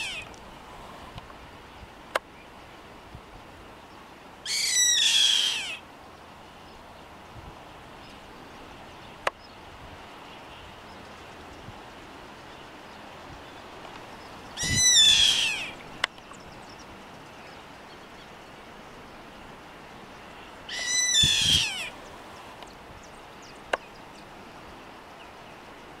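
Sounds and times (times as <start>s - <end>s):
bird screeching calls: 0.0s - 0.3s, 4.4s - 5.8s, 14.6s - 15.8s, 20.7s - 22.0s.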